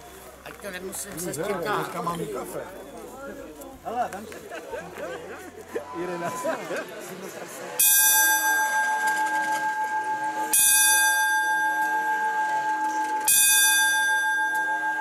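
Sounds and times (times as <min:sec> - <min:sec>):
bell tolling: 0:07.8 - 0:15.0.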